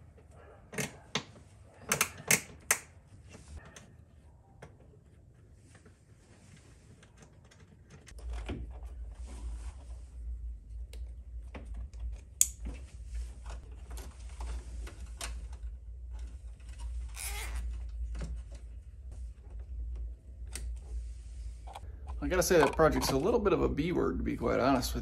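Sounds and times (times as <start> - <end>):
hands working wiring clicks: 0.7 - 3.0, 10.8 - 12.7
low steady rumble: 8.2 - 25.0.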